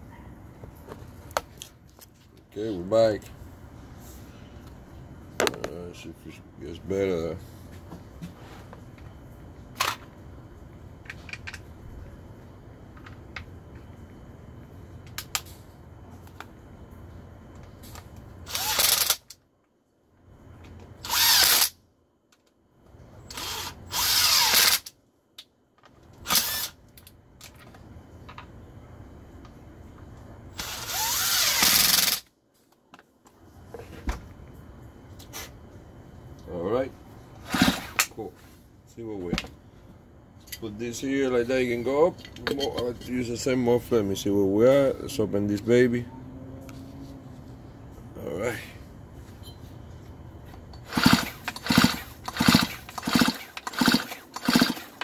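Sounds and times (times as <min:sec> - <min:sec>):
chainsaw recoil starter pulls: 0:18.5 - 0:19.2, 0:30.6 - 0:32.2, 0:37.4 - 0:38.2, 0:50.8 - 0:55.0.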